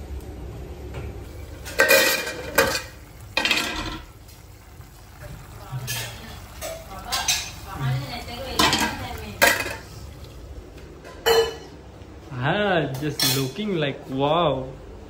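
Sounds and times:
metal pot and utensils clattering: 1.4 - 4.1, 5.4 - 9.9, 11.0 - 11.8, 13.0 - 13.6.

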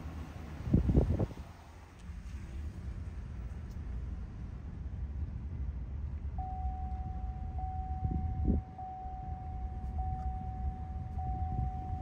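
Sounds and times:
vehicle rolling rumble: 0.0 - 12.0
high-pitched steady beep: 6.4 - 12.0.

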